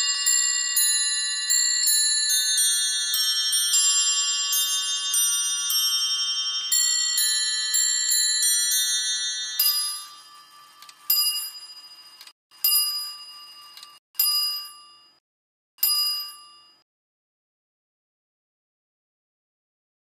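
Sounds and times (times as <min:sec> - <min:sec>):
musical clock bells chiming: 0:00.0 - 0:15.2.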